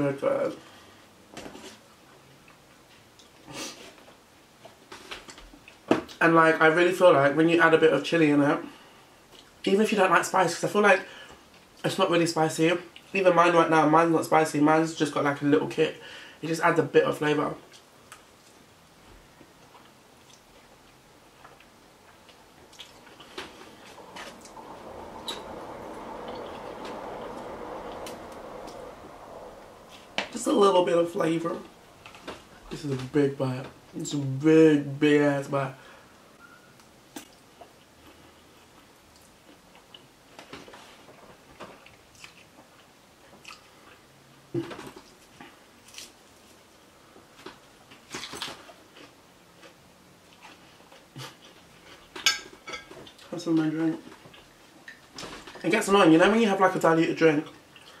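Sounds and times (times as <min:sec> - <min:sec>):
person chewing: 0:19.6 - 0:24.5, 0:41.8 - 0:44.0.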